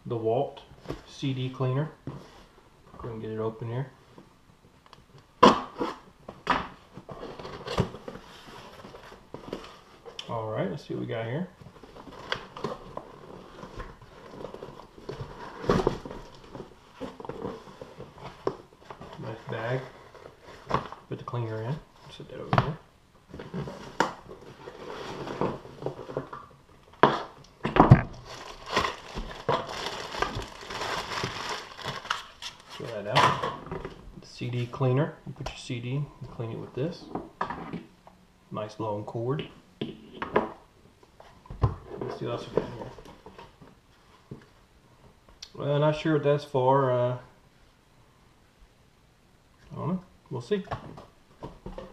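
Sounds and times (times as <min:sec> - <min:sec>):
cardboard rustling: 0:11.6 - 0:21.1, 0:21.8 - 0:33.2
tape and cardboard ripping: 0:27.0 - 0:32.8
plastic bag crinkling: 0:28.1 - 0:33.0.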